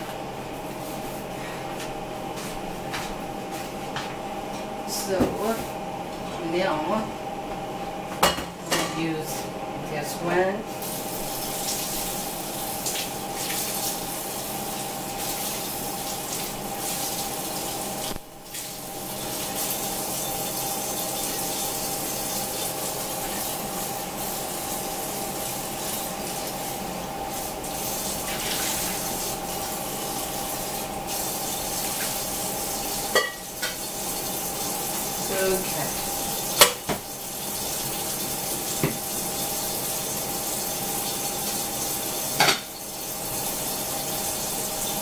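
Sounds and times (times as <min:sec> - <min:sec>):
steady hum: 0:00.0 - 0:39.2
tap water running: 0:10.7 - 0:45.0.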